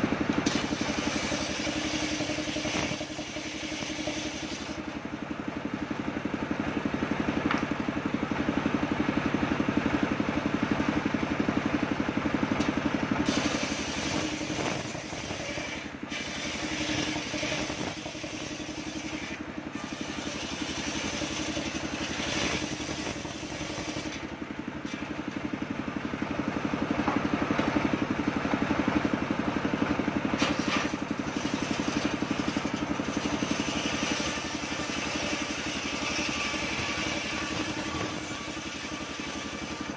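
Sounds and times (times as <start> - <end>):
circular saw ripping timber: 0.4 - 5.0, 13.2 - 25.2, 30.4 - 39.9.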